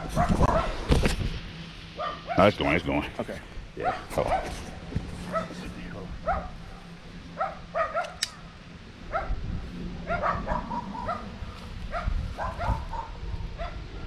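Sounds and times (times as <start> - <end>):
dog barking: 0.0 - 0.8, 2.0 - 2.6, 3.8 - 4.6, 5.3 - 5.6, 6.2 - 6.6, 7.4 - 8.2, 9.1 - 9.4, 10.1 - 14.0.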